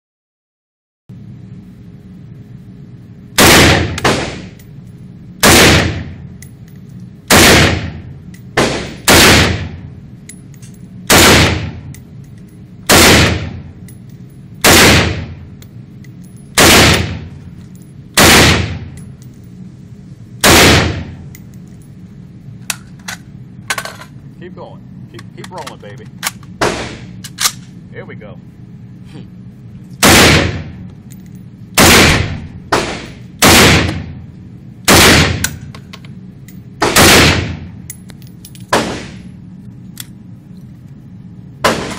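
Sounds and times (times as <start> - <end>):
rifle shots echoing indoors: 3.4 - 4.6, 5.4 - 6.2, 7.3 - 9.9, 11.1 - 11.9, 12.8 - 13.7, 14.6 - 15.4, 16.6 - 17.4, 18.2 - 19.0, 20.4 - 21.2, 26.6 - 27.6, 30.0 - 30.8, 31.7 - 34.1, 34.8 - 35.7, 36.8 - 37.7, 38.7 - 39.3, 41.6 - 41.9.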